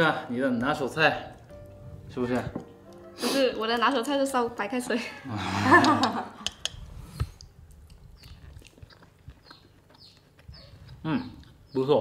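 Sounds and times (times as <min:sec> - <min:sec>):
person eating: 0:05.3 - 0:11.8.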